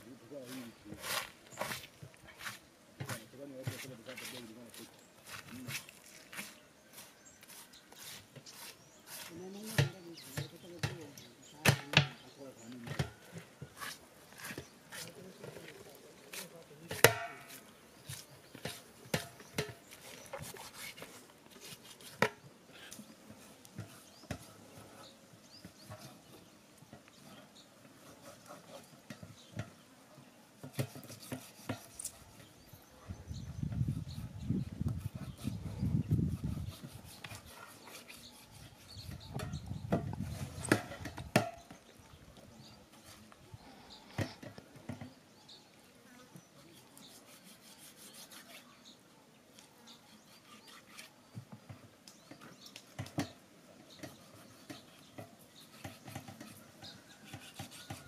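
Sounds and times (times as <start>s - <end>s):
knife cutting and scraping meat: 0.5s - 10.6s, 13.7s - 22.3s, 30.7s - 32.4s, 33.9s - 39.7s, 46.7s - 48.9s, 49.9s - 51.2s, 53.9s - 58.0s
knife chopping bone on metal tray: 9.7s - 11.0s, 16.9s - 17.6s.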